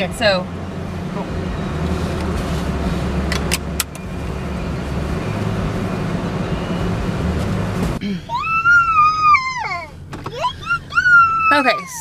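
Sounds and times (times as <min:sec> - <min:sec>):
car cabin rumble: 0:00.0 - 0:12.0
child squealing: 0:08.0 - 0:12.0.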